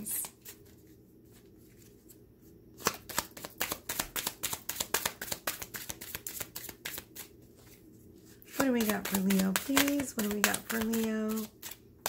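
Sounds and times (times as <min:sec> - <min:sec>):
cards being shuffled: 0:02.8 - 0:11.9.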